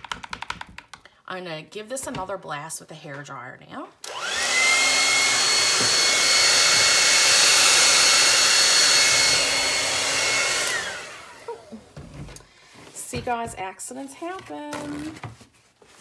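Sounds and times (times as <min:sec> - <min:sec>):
hair dryer running: 0:04.0 - 0:12.0.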